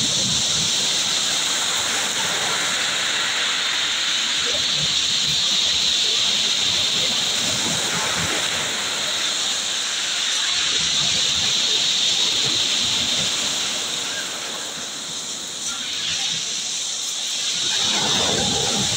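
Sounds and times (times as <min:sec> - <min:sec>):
waves washing over pebbles: 0:00.0 - 0:18.9.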